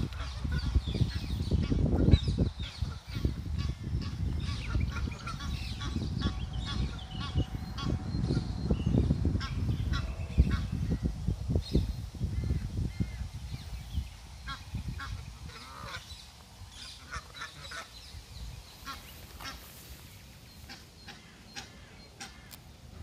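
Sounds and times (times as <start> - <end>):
goslings peeping: 0.0 - 23.0
geese honking: 2.9 - 8.4, 14.5 - 16.1, 16.7 - 18.0, 18.8 - 19.9, 20.6 - 22.6.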